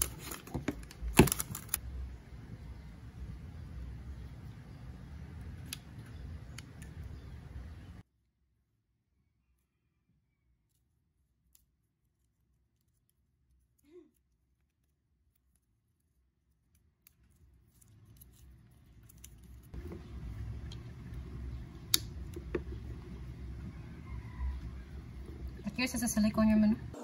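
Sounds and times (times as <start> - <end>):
cable and adapter handling rustle: 0.0 - 1.8.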